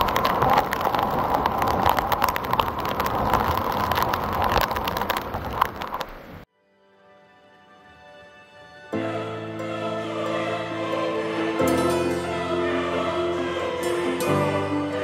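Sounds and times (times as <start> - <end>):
water splashing on microphone: 0.0 - 6.4.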